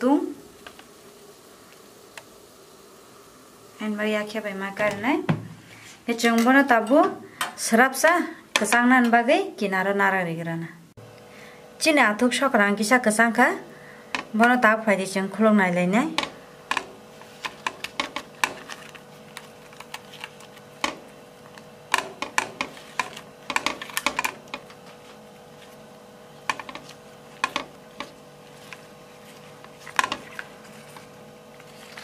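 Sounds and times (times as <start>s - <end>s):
faint steady hum: 0.0s - 32.0s
leaf parcel crackling unwrapped: 17.0s - 32.0s.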